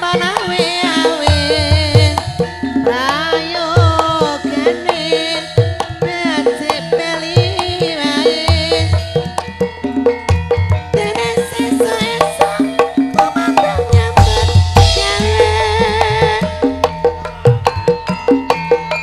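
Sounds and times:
woman singing: 0:00.0 - 0:09.4, 0:10.8 - 0:16.9
metallophones ringing melody: 0:00.0 - 0:19.0
hand drums deep strokes: 0:13.1 - 0:18.5.

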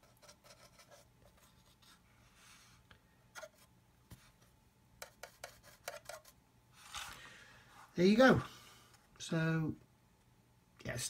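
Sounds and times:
paintbrush scratching on plastic: 0:00.0 - 0:02.0, 0:05.0 - 0:06.4.

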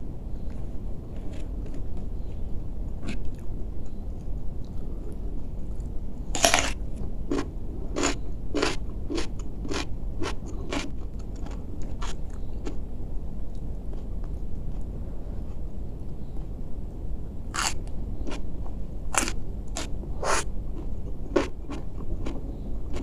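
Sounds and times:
crisp chewing crunches: 0:04.6 - 0:12.8, 0:17.5 - 0:18.4, 0:19.1 - 0:23.0
crunching bite into cucumber: 0:06.4 - 0:12.5, 0:17.6 - 0:18.4.

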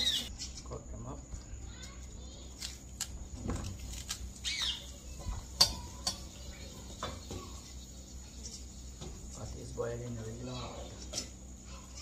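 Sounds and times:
knife cutting scallion stalks: 0:02.6 - 0:04.3.

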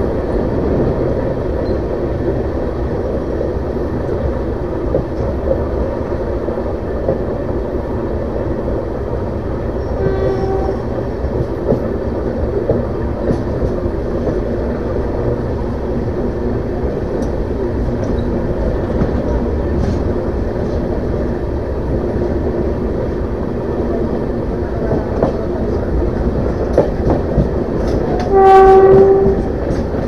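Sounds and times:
moving train rumble: 0:00.0 - 0:30.0
train horn: 0:10.0 - 0:11.1, 0:28.1 - 0:29.6.

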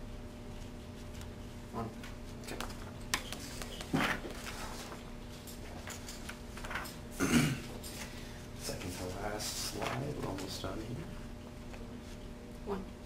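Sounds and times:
steady low hum: 0:00.0 - 0:13.0
paper sheets handled on a table: 0:02.2 - 0:07.0, 0:08.9 - 0:10.7.

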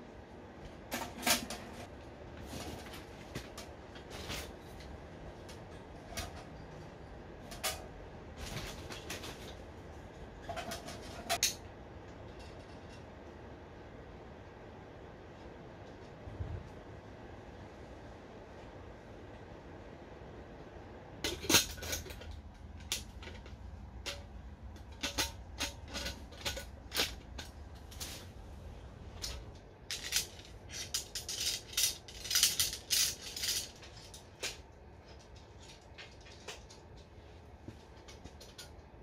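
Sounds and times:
camping gear clicking and clattering: 0:00.7 - 0:13.2, 0:21.2 - 0:39.0.

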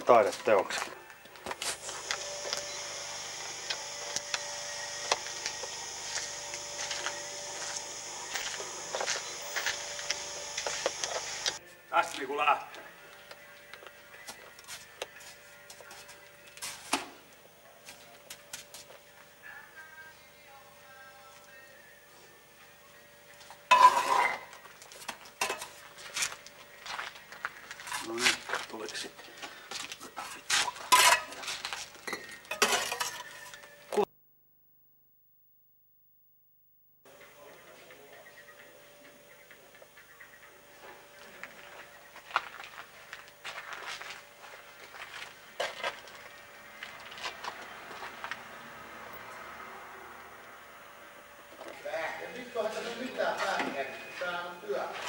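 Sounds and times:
tape mechanism hiss and hum: 0:01.2 - 0:11.6, 0:37.0 - 0:54.9.

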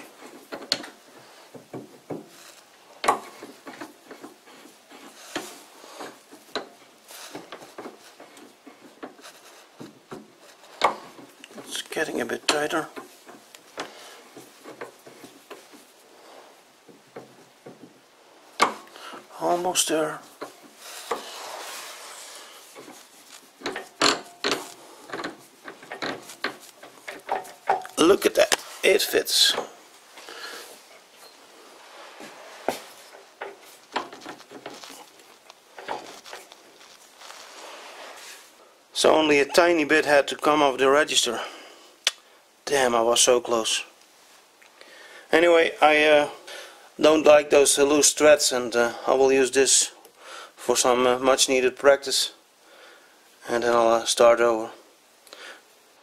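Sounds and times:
light metal knocks and clicks: 0:00.2 - 0:02.4, 0:23.6 - 0:28.0
light metal clicks and rubbing: 0:19.8 - 0:29.6.

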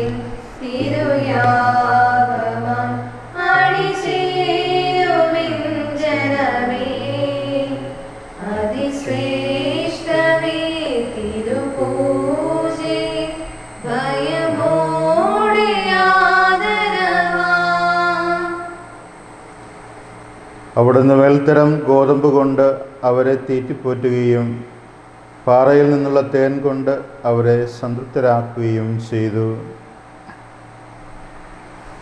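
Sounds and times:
steady low note: 0:00.0 - 0:17.5
women's choir singing a hymn: 0:00.0 - 0:19.0.

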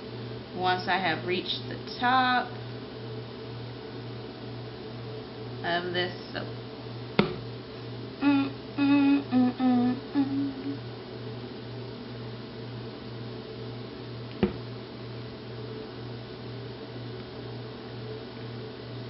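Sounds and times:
steady low hum: 0:00.0 - 0:19.0
woman humming a tune: 0:08.2 - 0:10.9.

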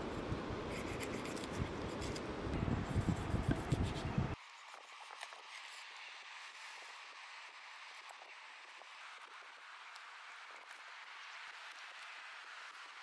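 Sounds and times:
wind rumble on microphone: 0:00.0 - 0:04.4.

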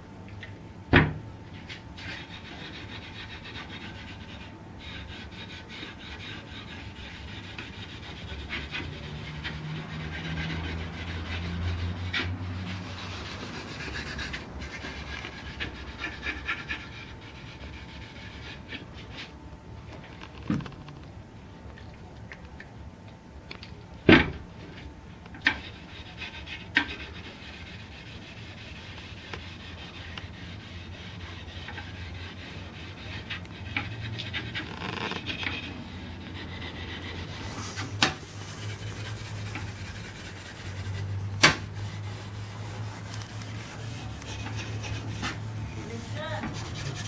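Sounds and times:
low steady hum: 0:00.0 - 0:47.0
hand rubbing on wood: 0:25.5 - 0:47.0.

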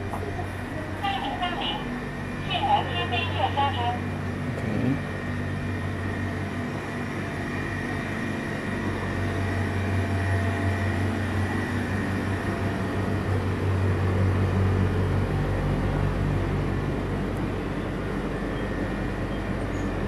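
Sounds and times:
cooling equipment hum: 0:00.0 - 0:20.0.

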